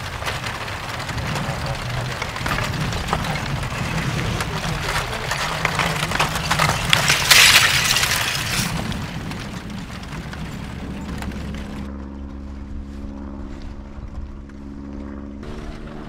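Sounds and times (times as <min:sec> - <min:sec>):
lava crust clinking and cracking: 0:00.0 - 0:11.9
rocks crumbling: 0:00.0 - 0:11.9
low steady hum: 0:00.0 - 0:16.0.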